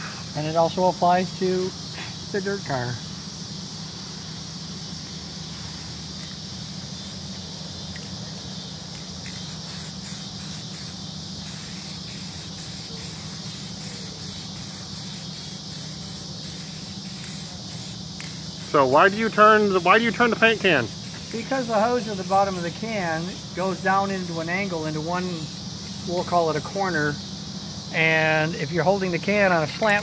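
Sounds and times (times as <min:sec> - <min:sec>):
background hiss: 0:00.0 - 0:30.0
aerosol spray can spraying: 0:05.5 - 0:08.2, 0:08.8 - 0:27.1.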